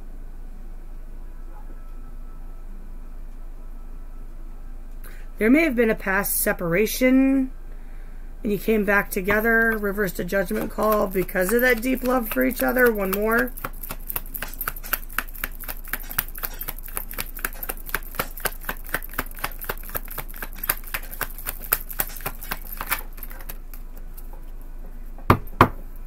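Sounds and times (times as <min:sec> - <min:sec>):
cards being shuffled: 0:09.1 - 0:24.0.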